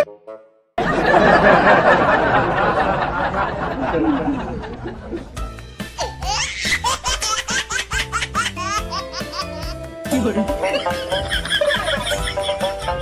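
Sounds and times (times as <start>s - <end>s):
background music: 0.0s - 13.0s
high-pitched giggling laughter: 6.0s - 9.8s, 10.6s - 13.0s.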